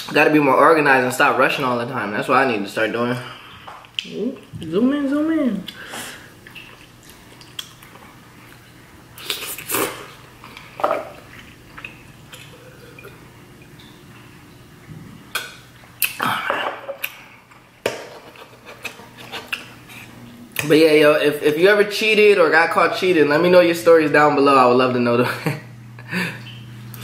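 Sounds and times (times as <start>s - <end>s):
person chewing and slurping noodles: 5.7s - 13.4s.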